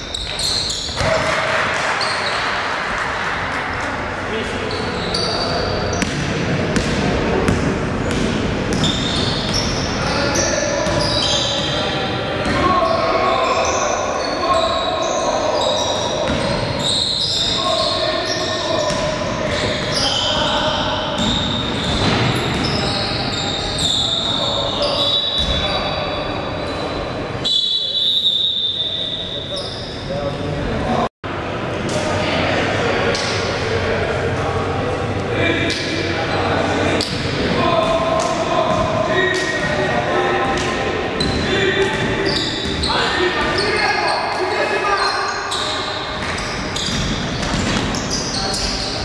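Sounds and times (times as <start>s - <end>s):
shoe squeaks: 0.0s - 1.2s, 4.6s - 6.2s, 8.7s - 30.4s, 41.2s - 49.0s
gym hall noise: 0.0s - 49.0s
basketball bouncing on court: 5.9s - 9.8s, 16.2s - 16.6s, 46.2s - 48.8s
crowd voices din: 30.2s - 49.0s.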